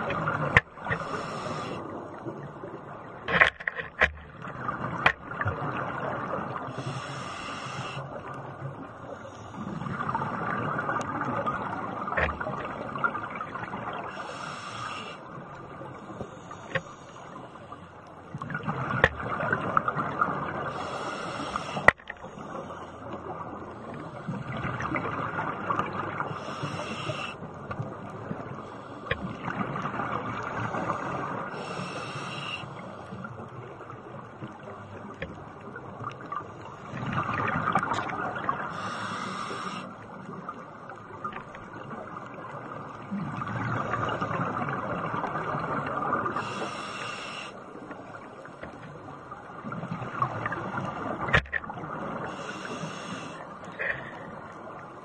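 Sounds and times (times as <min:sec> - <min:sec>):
regulator inhalation hiss: 0:01.0 - 0:01.8, 0:06.7 - 0:08.1, 0:14.1 - 0:15.2, 0:20.7 - 0:21.9, 0:26.3 - 0:27.4, 0:31.5 - 0:32.9, 0:38.7 - 0:39.9, 0:46.4 - 0:47.6, 0:52.3 - 0:53.4.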